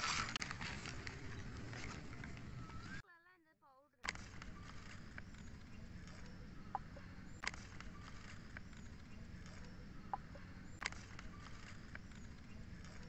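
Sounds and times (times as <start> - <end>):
sharp clicks: 4.0 - 13.0.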